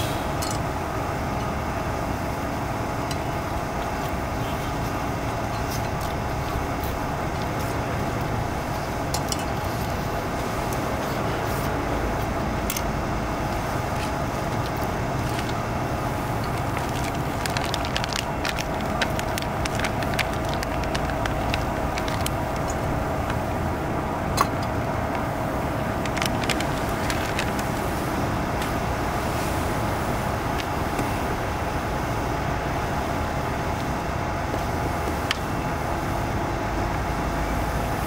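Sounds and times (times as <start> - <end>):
gas stove burner roaring: 0.0 - 38.0
frying pan crackles and ticks: 13.5 - 23.6.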